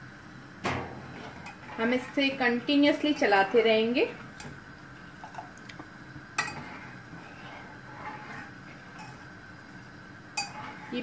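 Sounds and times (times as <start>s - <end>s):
spoon stirring liquid in saucepan: 1.0s - 11.0s
spoon clinking against pan: 10.4s - 10.6s.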